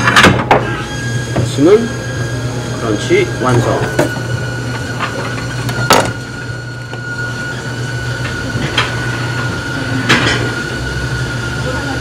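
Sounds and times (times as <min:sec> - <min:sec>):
high whine: 0:00.0 - 0:12.0
kitchen equipment humming: 0:00.0 - 0:12.0.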